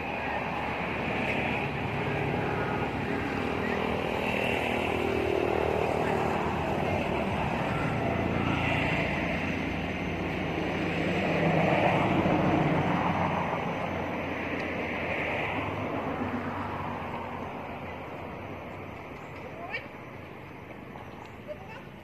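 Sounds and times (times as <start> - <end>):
motor vehicle engine drone: 0.0 - 22.0.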